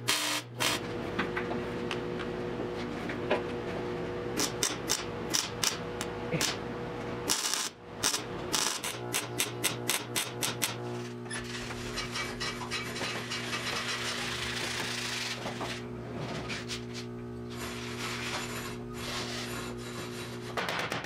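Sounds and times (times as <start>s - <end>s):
welder arc bursts: 0.0s - 0.8s, 4.4s - 5.8s, 7.3s - 10.8s.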